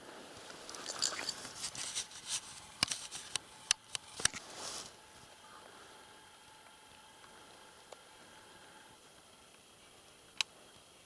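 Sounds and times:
dry grass rustling: 0.1 - 8.4.

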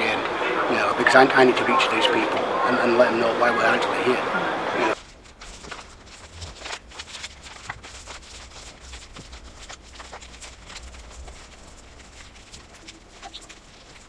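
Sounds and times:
paper folding and creasing: 4.9 - 14.0.

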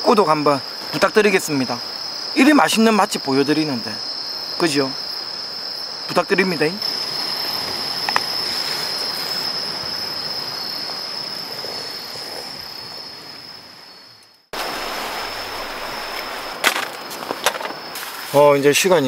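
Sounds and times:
insects chirping: 0.0 - 19.0
wind and sea rushing: 6.8 - 18.4.

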